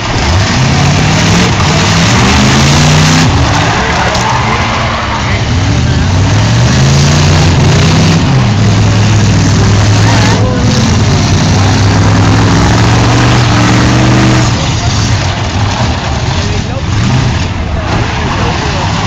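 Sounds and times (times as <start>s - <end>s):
car engines revving hard: 0.0s - 19.0s
cars ramming each other: 0.0s - 19.0s
wheels spinning in mud: 8.8s - 19.0s.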